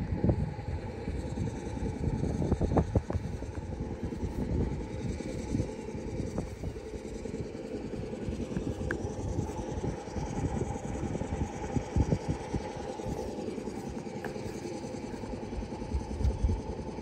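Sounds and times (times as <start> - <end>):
truck engine idling: 0.1 - 17.0.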